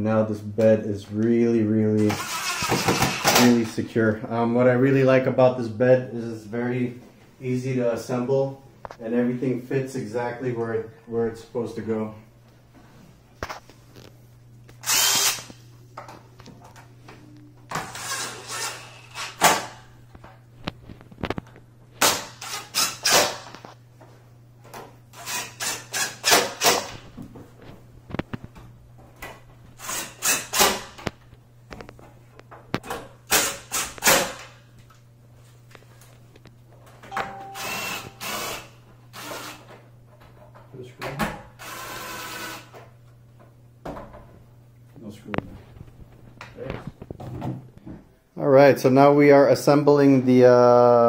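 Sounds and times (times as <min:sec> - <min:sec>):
cordless drill driving screws: 0:02.1 - 0:03.4, 0:14.8 - 0:15.5, 0:17.7 - 0:19.7, 0:22.0 - 0:23.5, 0:25.2 - 0:27.0, 0:29.8 - 0:30.9, 0:37.6 - 0:39.7, 0:41.6 - 0:42.7.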